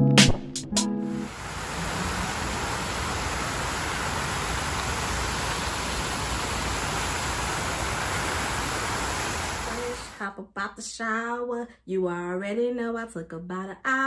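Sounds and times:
shower running: 0:01.2 - 0:10.2.

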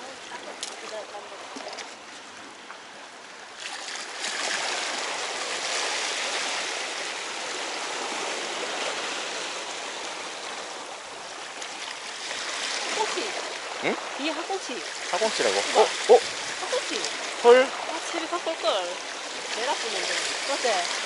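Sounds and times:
seawater washing over rocks: 0:00.0 - 0:02.5, 0:03.4 - 0:21.0.

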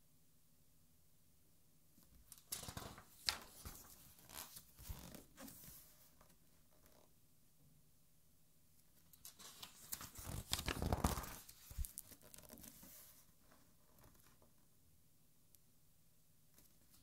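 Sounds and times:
book page turning: 0:02.3 - 0:06.1, 0:09.2 - 0:13.4
page thumping flat: 0:09.8 - 0:12.0.

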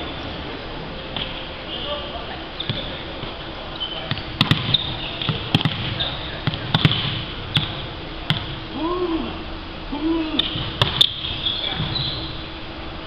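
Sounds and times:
shoe squeaks on floor: 0:02.6 - 0:03.1, 0:03.8 - 0:06.4, 0:10.4 - 0:12.5
volleyball impacts: 0:04.1 - 0:08.6, 0:10.4 - 0:12.0
players calling out: 0:08.6 - 0:12.5.

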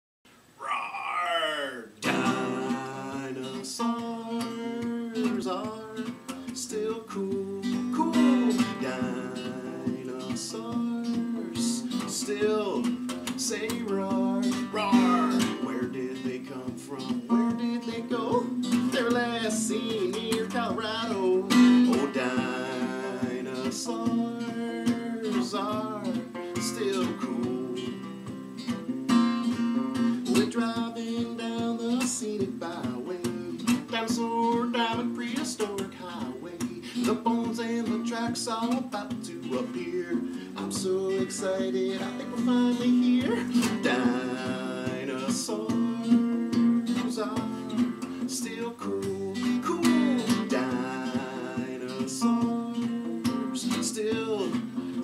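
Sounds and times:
acoustic guitar strumming: 0:02.0 - 0:55.0.

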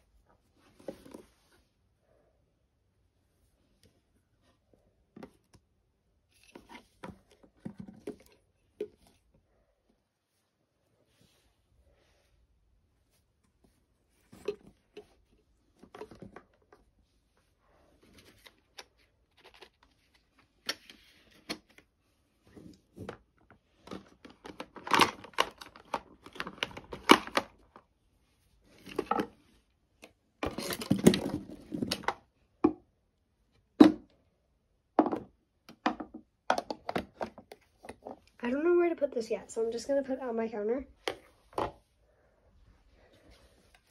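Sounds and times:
rummaging rattle: 0:30.4 - 0:32.2.

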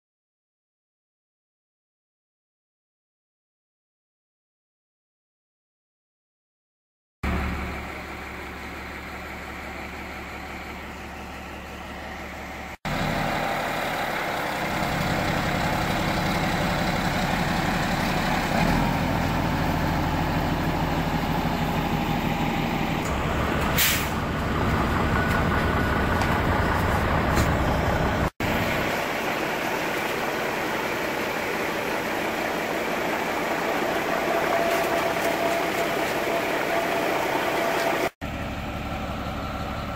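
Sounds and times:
diesel truck engine idling: 0:07.3 - 0:39.9
air hiss: 0:23.8 - 0:24.2.

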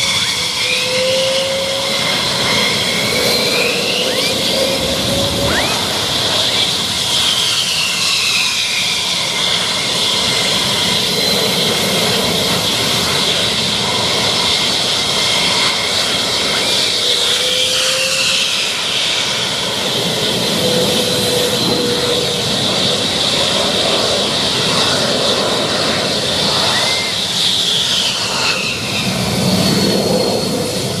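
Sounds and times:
jet engines running: 0:00.0 - 0:31.0.

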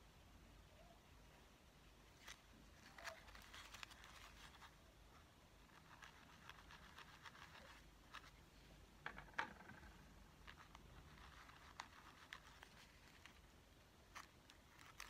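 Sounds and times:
hands rustling and clicking: 0:02.1 - 0:04.8, 0:05.7 - 0:13.5, 0:14.1 - 0:15.0.

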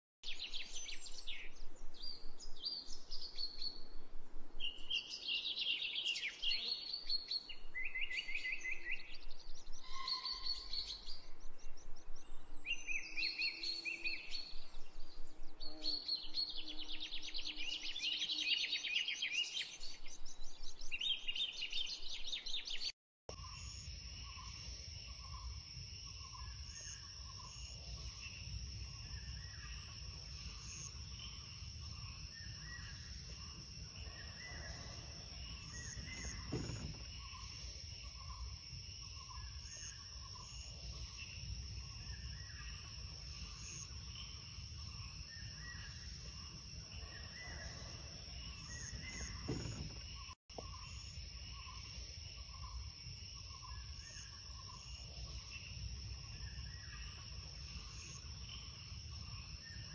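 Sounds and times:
songbirds chirping and trilling: 0:00.2 - 0:59.9
pulsing insect chorus: 0:23.3 - 0:59.9.

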